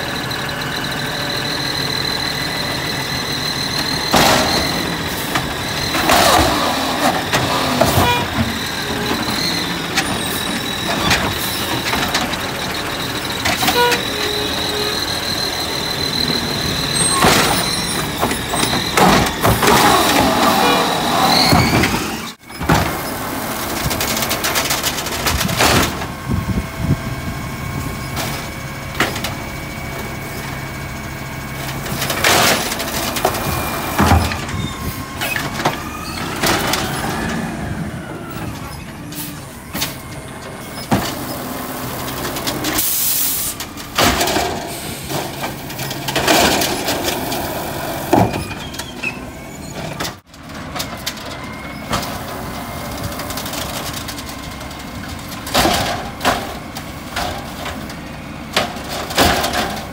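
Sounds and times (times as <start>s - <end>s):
garbage truck engine running: 0.0s - 59.9s
hydraulic arm clunks and bangs: 16.9s - 23.2s, 31.7s - 37.2s, 55.3s - 59.9s.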